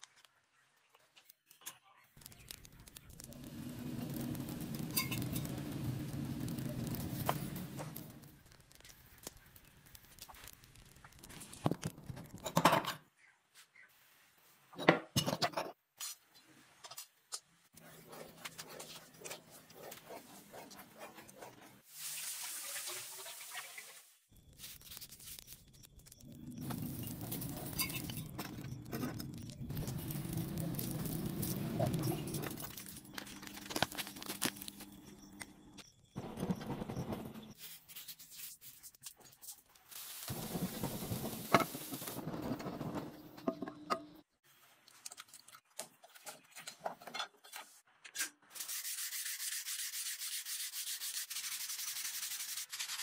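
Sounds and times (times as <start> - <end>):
scorching wood crackling: 2.1 - 12.5, 24.4 - 35.6, 40.0 - 43.2.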